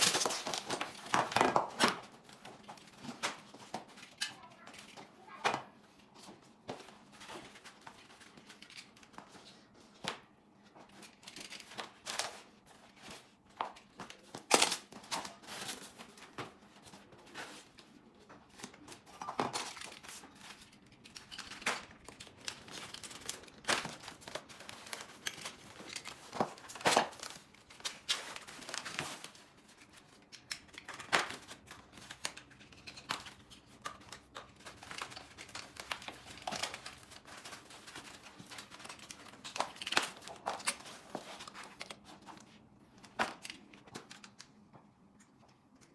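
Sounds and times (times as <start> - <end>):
packaging rustling and crinkling: 0.0 - 5.0, 10.6 - 44.3.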